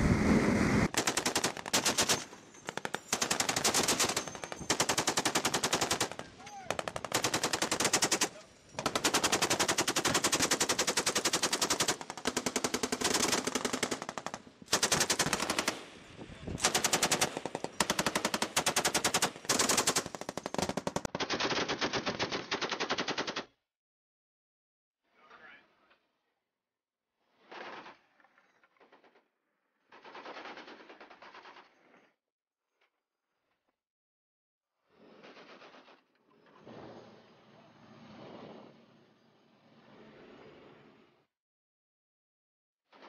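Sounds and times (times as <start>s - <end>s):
machine gun automatic fire: 0.8s - 16.0s, 16.6s - 23.5s, 29.9s - 31.8s.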